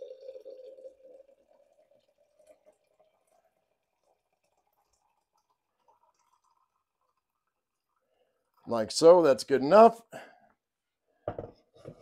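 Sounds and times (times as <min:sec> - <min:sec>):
hot water pouring into glass: 0:00.0 - 0:09.1.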